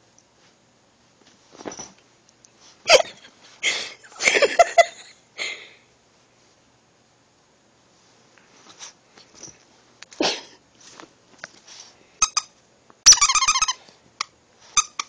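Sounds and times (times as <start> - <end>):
squeaky toy squeaking: 12.2 - 13.8, 14.8 - 15.0.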